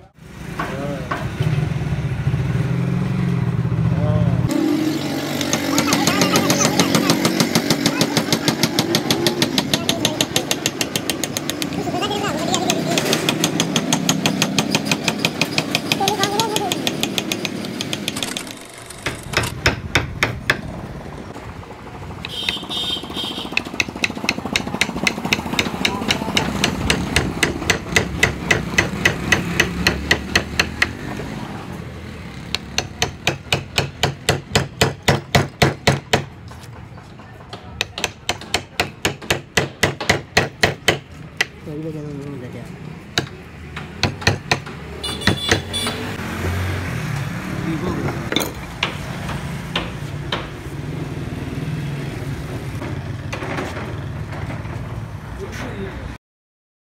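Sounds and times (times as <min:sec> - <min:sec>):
mallet tapping chisel into wood: 0:12.6 - 0:18.4, 0:23.6 - 0:31.0, 0:37.4 - 0:41.6, 0:43.2 - 0:45.7.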